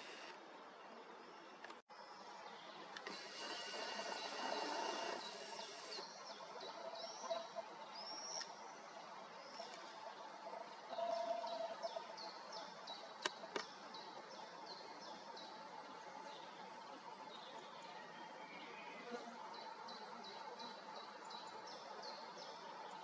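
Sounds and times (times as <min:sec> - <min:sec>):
camera zoom motor whirring: 0:00.0 - 0:00.4, 0:03.0 - 0:06.0
songbird chirping: 0:00.0 - 0:23.0.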